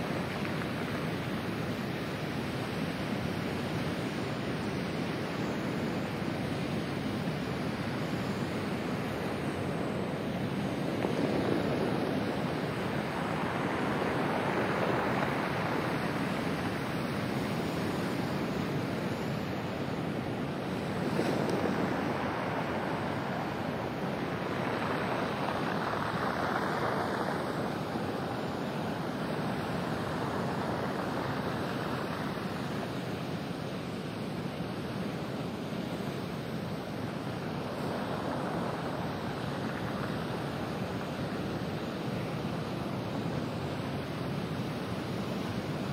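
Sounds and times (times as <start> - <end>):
surf breaking over pebble beach: 20.5 - 32.8.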